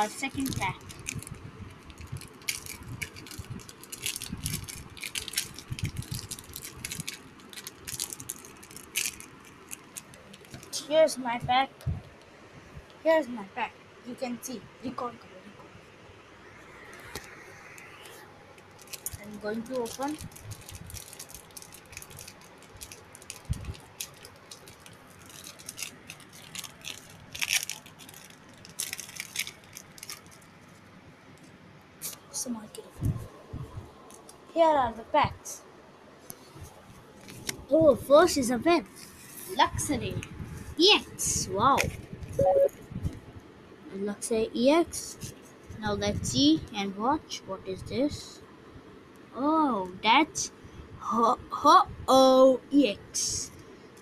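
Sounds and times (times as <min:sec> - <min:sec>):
foil wrapper crinkling: 0:00.1 - 0:10.8, 0:18.6 - 0:30.8, 0:37.2 - 0:37.7.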